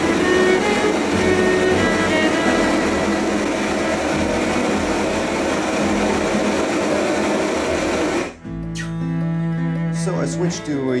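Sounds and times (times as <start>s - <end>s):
propane torch flame rushing: 0.0s - 8.4s.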